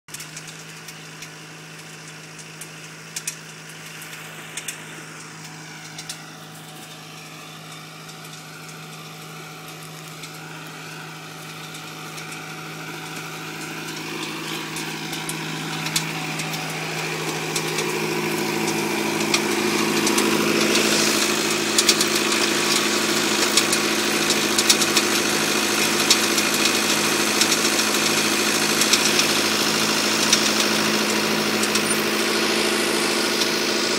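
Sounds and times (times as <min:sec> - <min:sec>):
tractor engine running: 0:00.1 - 0:33.9.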